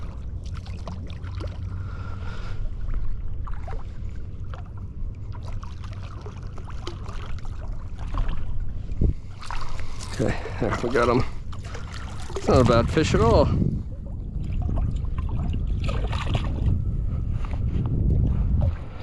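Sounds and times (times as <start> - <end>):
water splashing and sloshing: 0.0 - 19.0
wind on microphone: 7.6 - 19.0.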